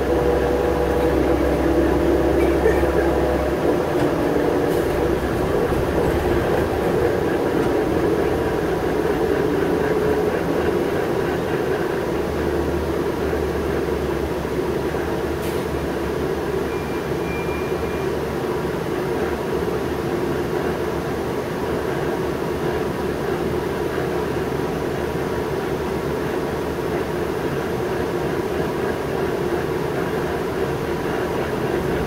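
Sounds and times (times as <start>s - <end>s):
bus engine drone: 0.0s - 32.0s.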